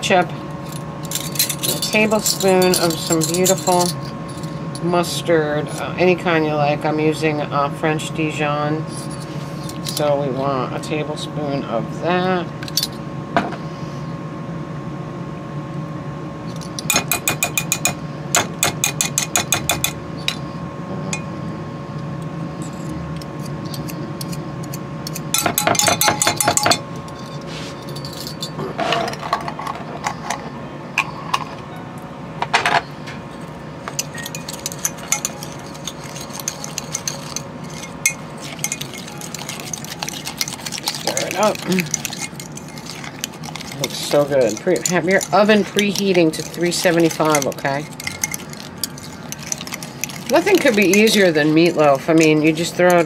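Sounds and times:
spoons clinking against glass: 0.7 - 4.9, 16.8 - 20.4, 22.6 - 29.3, 33.3 - 53.0
spoon stirring in glass cup: 0.7 - 5.0, 16.5 - 20.4, 22.5 - 31.5, 33.3 - 53.0.

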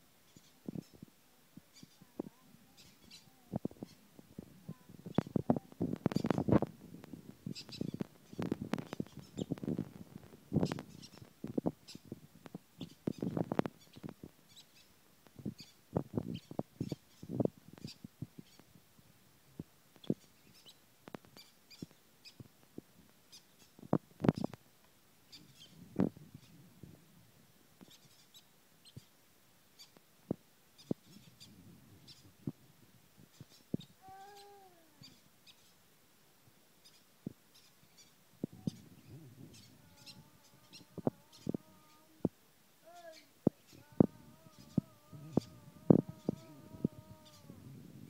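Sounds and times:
bird chick chirping: 1.7 - 4.0, 4.7 - 6.6, 7.5 - 12.1, 12.8 - 14.9, 36.8 - 42.2, 42.9 - 47.6.

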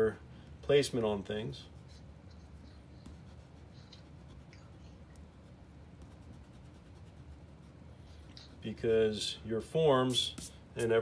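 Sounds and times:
low steady hum: 0.0 - 11.0
eraser rubbing on paper: 1.7 - 4.5, 5.4 - 7.8, 10.1 - 11.0.

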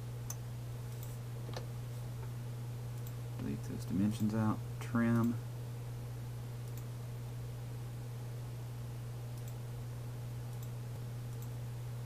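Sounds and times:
steady low hum: 0.0 - 12.0
computer mouse clicks: 6.6 - 6.9, 9.4 - 9.6, 10.5 - 10.7, 11.3 - 11.6.

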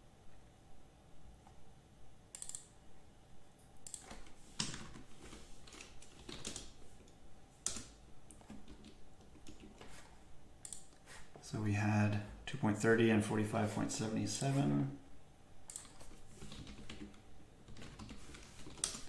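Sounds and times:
keyboard typing: 2.3 - 2.7, 3.8 - 11.0, 15.7 - 19.0
mouse clicks: 2.3 - 2.7, 10.6 - 11.0.

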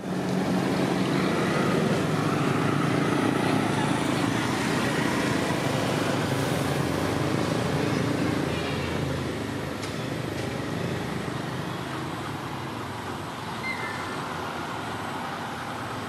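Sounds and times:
road traffic noise: 0.0 - 16.0.

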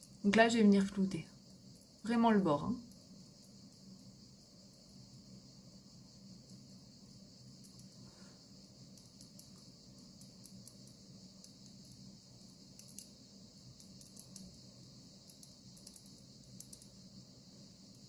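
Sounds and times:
steady high hiss: 0.0 - 18.0
faint ticks: 6.4 - 14.6, 15.2 - 17.0.

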